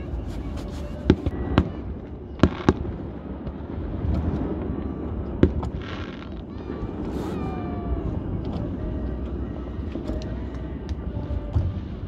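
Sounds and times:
steady low rumble: 0.0s - 12.0s
fireworks bursting bangs: 0.1s - 8.5s.

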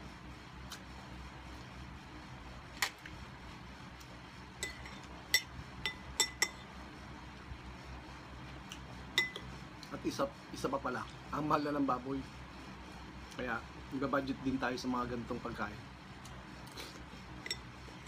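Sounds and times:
metal spoon clinking on glass bowl: 9.2s - 9.4s.

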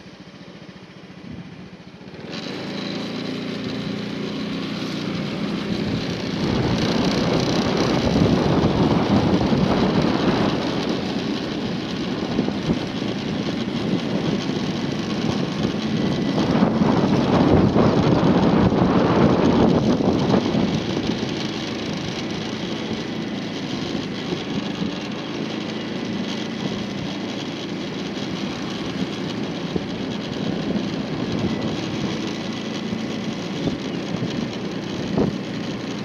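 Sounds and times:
road noise: 0.0s - 36.0s
vehicle engine running: 0.0s - 36.0s
wind rushing over microphone: 5.0s - 26.0s, 28.2s - 35.6s.

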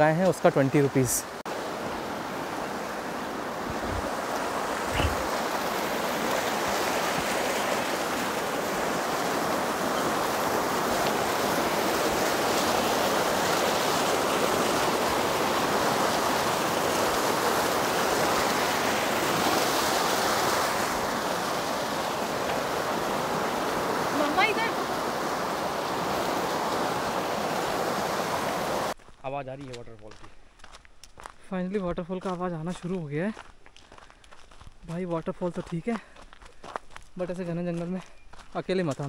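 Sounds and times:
water rushing down channel: 0.0s - 29.0s.

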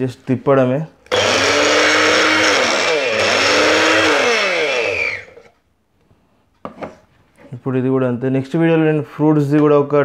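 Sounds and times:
blender motor running: 1.1s - 5.5s.

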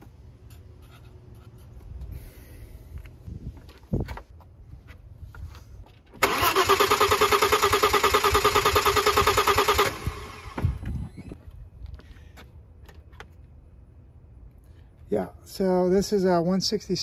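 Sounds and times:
engine starter cranking: 6.2s - 11.4s.

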